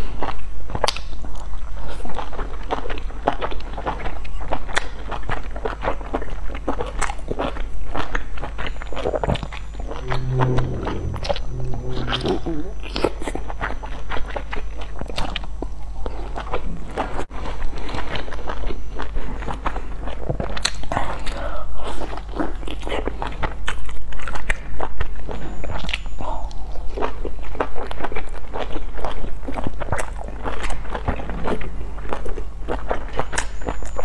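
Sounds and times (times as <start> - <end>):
chewing and wet mouth sounds: 0.0 - 9.5, 14.2 - 34.0
steady low hum: 9.3 - 14.4.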